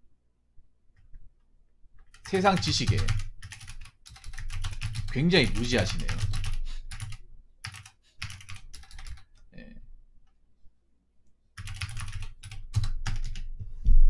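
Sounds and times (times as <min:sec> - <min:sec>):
computer keyboard typing: 0:02.0 - 0:09.5, 0:11.6 - 0:13.5.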